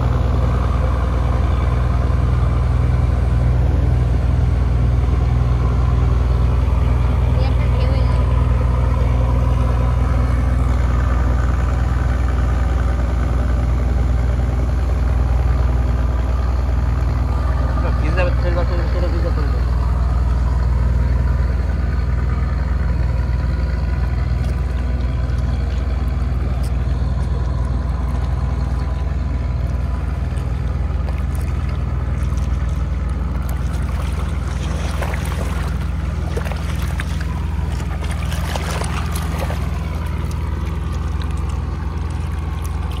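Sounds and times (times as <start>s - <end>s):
boat engine droning: 0.0s - 43.0s
waves splashing against riverbank: 24.3s - 43.0s.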